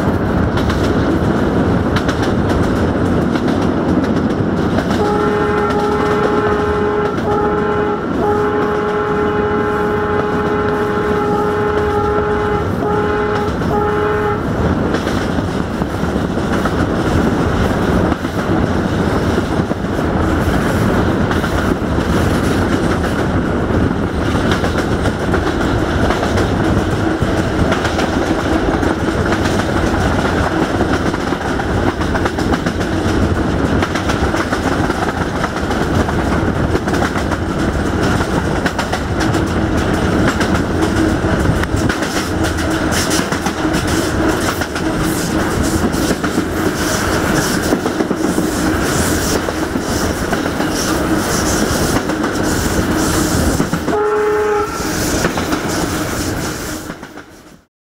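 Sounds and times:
diesel locomotive engine running hard: 0.0 - 56.8
moving train noise: 0.0 - 57.7
locomotive horn long note: 5.0 - 14.6, 53.9 - 55.1.

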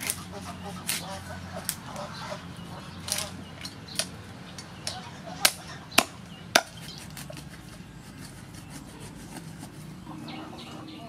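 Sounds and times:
cleaver chopping on wooden block: 5.4 - 7.5
faint tapping and rubbing: 6.8 - 10.3.

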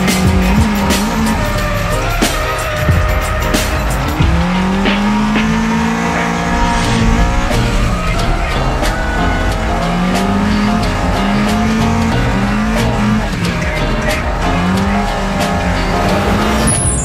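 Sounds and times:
car engines running hard: 0.0 - 17.0
music with steady beat and bass: 0.0 - 17.0
tyres squealing: 0.0 - 17.0.

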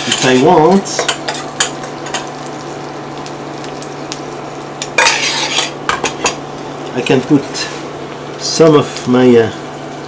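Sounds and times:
food sizzling in a pan: 0.0 - 10.0
spoon scraping bowl: 5.0 - 5.8.

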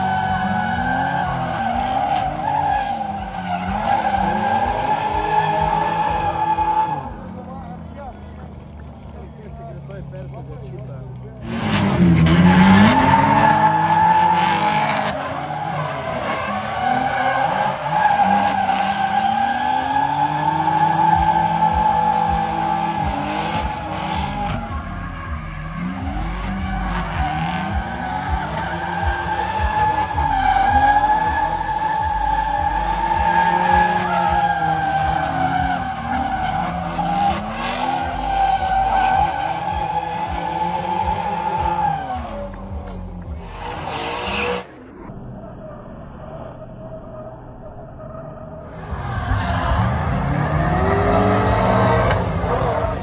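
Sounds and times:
tyres squealing: 0.0 - 8.0, 11.4 - 44.6
car engines revving: 0.0 - 53.0.

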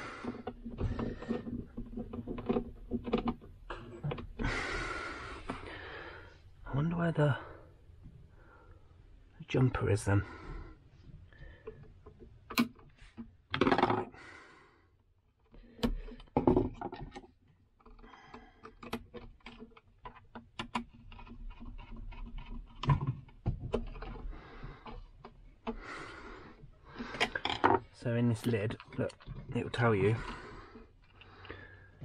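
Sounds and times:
tools clicking and tapping on wire: 0.2 - 4.4, 11.6 - 14.0, 15.3 - 32.0.

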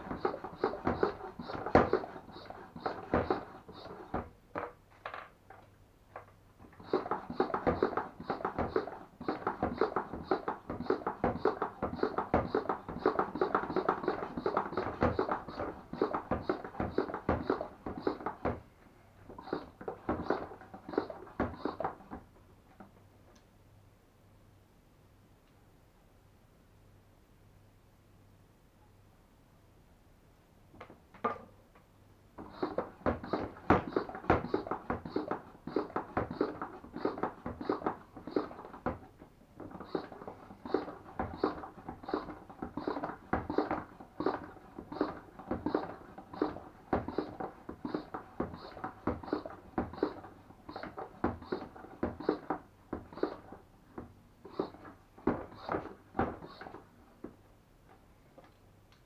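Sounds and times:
sprayer hand pump strokes: 0.0 - 4.2, 6.8 - 18.6, 19.3 - 22.1, 32.4 - 39.0, 39.6 - 53.6, 54.4 - 56.8.

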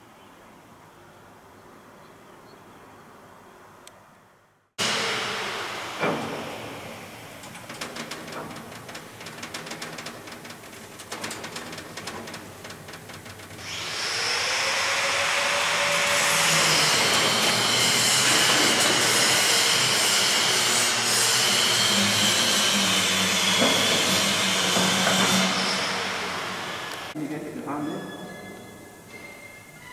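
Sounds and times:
power tool whine and hiss: 4.8 - 7.4, 13.6 - 27.2.

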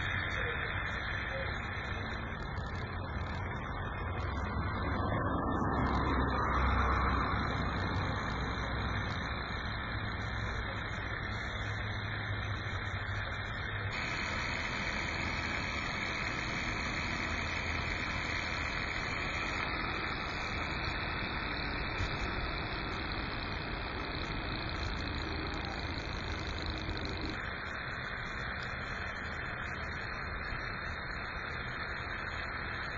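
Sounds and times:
stirling engine running: 0.0 - 29.4.

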